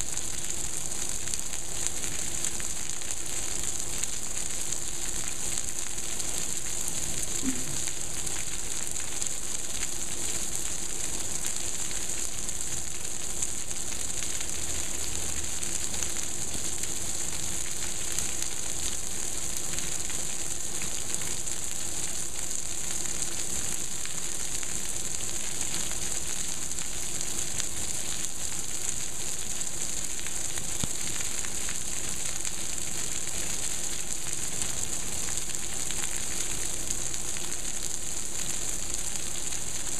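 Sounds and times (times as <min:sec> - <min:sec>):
heavy rain falling: 0:00.0 - 0:19.1.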